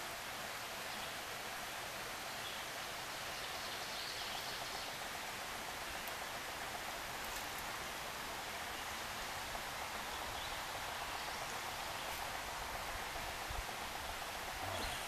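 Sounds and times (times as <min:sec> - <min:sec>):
flowing stream water: 0:00.0 - 0:15.0
faint ticks: 0:06.0 - 0:07.8.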